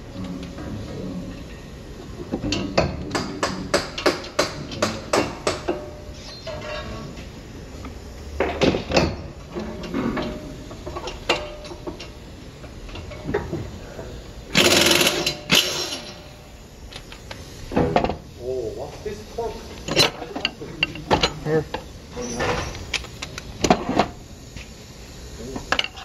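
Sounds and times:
air tool rushing burst: 0:14.5 - 0:17.8.

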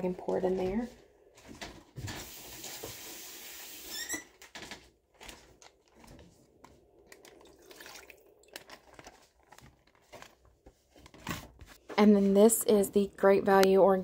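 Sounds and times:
faint knocks and handling noises: 0:00.3 - 0:02.2, 0:08.5 - 0:13.8
tap running water into plastic bag: 0:02.0 - 0:03.9.

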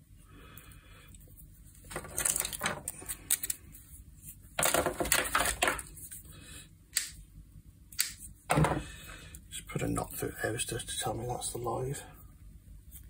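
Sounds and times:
rustling and clatter: 0:01.7 - 0:03.6, 0:04.3 - 0:06.1.

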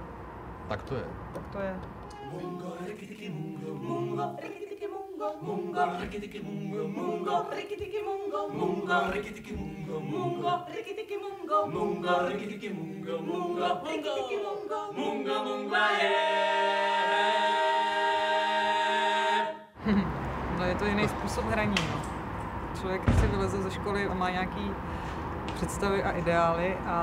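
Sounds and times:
voices singing a cappella: 0:02.0 - 0:19.8.

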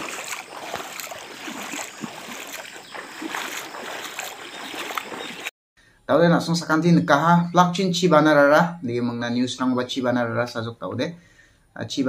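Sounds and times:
floodwater rushing: 0:00.0 - 0:05.5.

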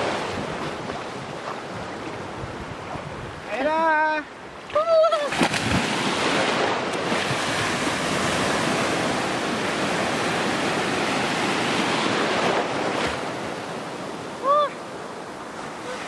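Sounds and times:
sea surf washing: 0:00.0 - 0:16.0
person calling: 0:04.7 - 0:05.4, 0:14.4 - 0:14.8.

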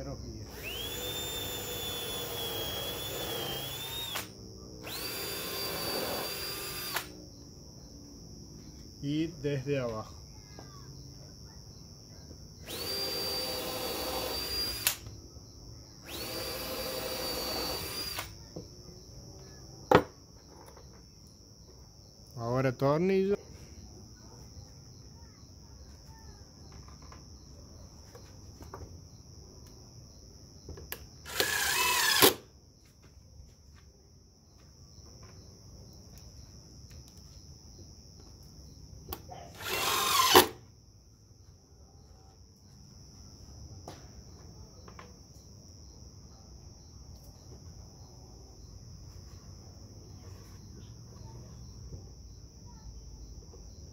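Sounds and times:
cordless drill boring into wood: 0:00.5 - 0:07.1, 0:12.6 - 0:15.0, 0:16.0 - 0:18.4, 0:31.2 - 0:32.4, 0:39.6 - 0:40.6
impact driver driving a screw: 0:00.6 - 0:04.3, 0:04.9 - 0:07.1, 0:31.3 - 0:32.4, 0:39.6 - 0:40.6.

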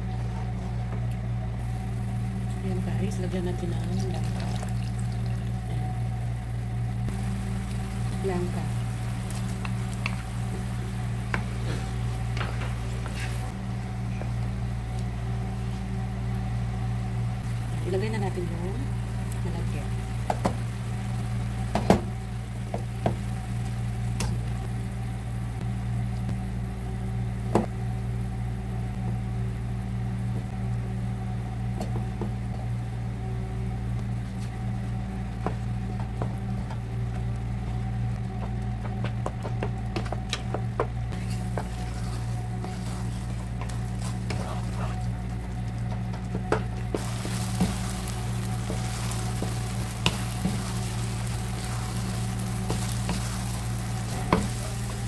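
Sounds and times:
steady low hum: 0:00.0 - 0:55.0
syrup bubbling: 0:03.8 - 0:14.6
wooden spatula scraping frying pan: 0:11.3 - 0:13.5, 0:41.2 - 0:45.2, 0:46.9 - 0:55.0.

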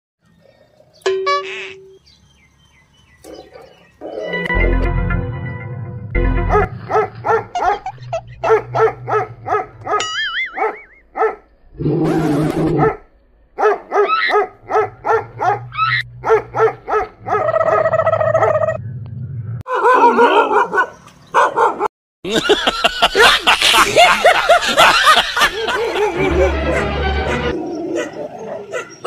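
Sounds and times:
dog barking and yelping: 0:06.5 - 0:11.5, 0:12.6 - 0:18.8, 0:19.7 - 0:21.9, 0:26.0 - 0:29.0.

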